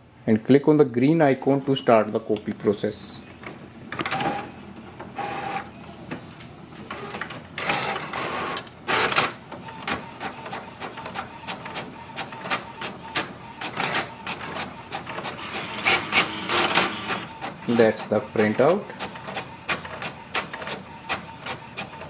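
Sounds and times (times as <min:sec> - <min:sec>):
printer mechanism whirring: 0:03.4 - 0:22.0
printer clicking: 0:06.9 - 0:22.0.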